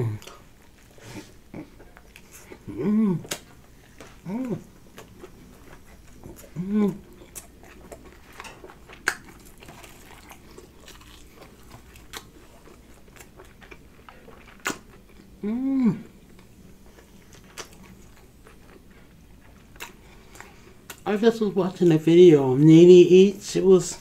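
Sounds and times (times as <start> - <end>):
person humming: 0.0 - 0.4, 2.6 - 3.4, 4.2 - 4.7, 6.5 - 7.0, 15.4 - 16.2
chewing crunchy food: 0.1 - 21.1.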